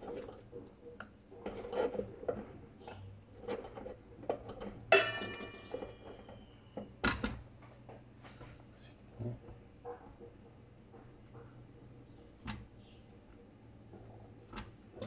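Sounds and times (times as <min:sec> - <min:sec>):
metal bowls scraping and knocking: 0:00.0 - 0:07.0
ringing metallic strike: 0:04.9 - 0:06.0.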